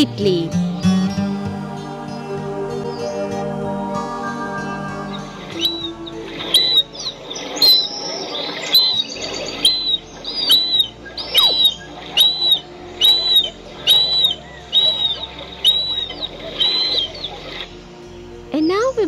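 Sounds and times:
faint soft music: 0.0s - 19.0s
bird whistling calls: 4.6s - 17.7s.

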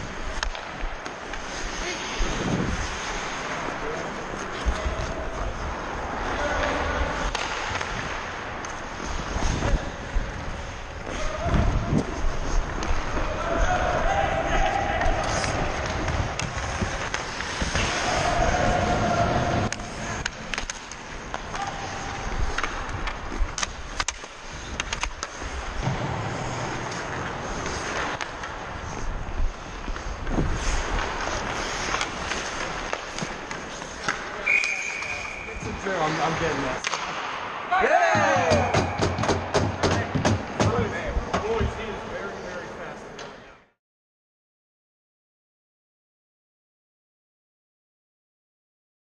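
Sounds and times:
hockey sticks and puck clacking: 0.0s - 42.0s
skates scraping on ice: 0.0s - 43.5s
sticks clacking on puck: 0.3s - 1.8s, 6.6s - 8.8s, 19.5s - 25.6s, 26.9s - 28.6s, 29.9s - 35.8s.

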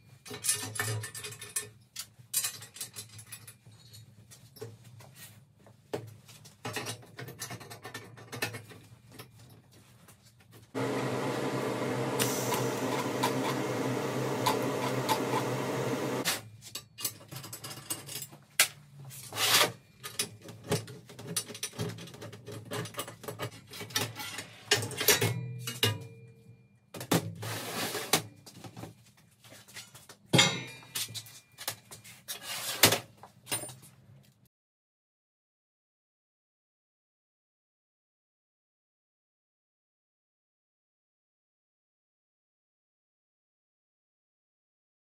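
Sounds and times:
metal parts knocking and clattering: 0.2s - 4.1s, 6.6s - 9.4s, 16.7s - 18.7s, 20.0s - 26.1s
steady buzzing hum: 10.8s - 16.2s.

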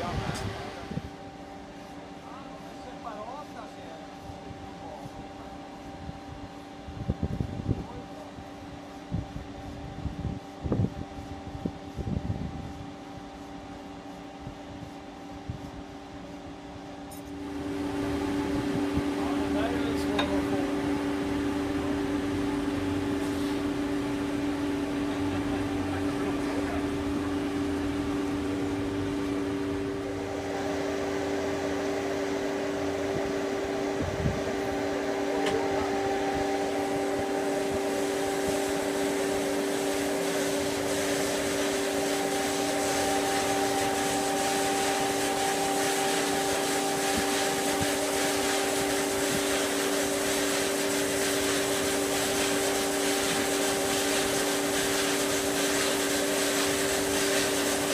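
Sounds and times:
band saw running: 17.3s - 57.9s
thin higher tone: 34.4s - 39.5s.

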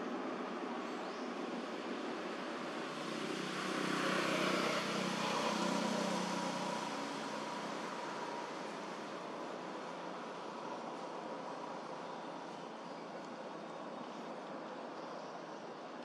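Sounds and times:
vehicle passing: 3.0s - 9.1s.

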